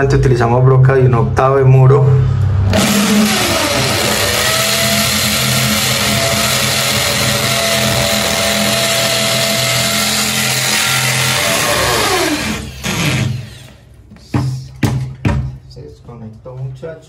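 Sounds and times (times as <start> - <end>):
drill motor winding down: 2.7 - 13.8
electric drill boring into wall: 2.7 - 13.8.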